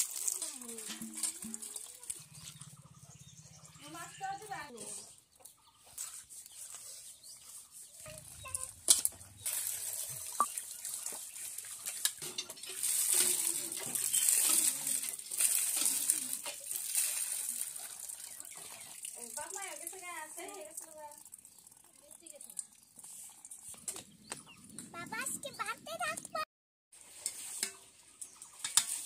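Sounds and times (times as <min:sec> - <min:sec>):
water sloshing in a steel bowl: 0:00.0 - 0:03.2, 0:05.8 - 0:24.0.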